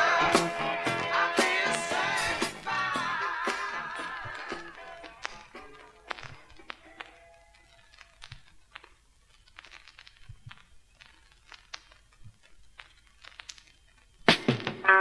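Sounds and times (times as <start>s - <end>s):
song with guitar: 0.0s - 7.2s
faint hiss: 0.0s - 15.0s
vinyl record crackle: 0.0s - 15.0s.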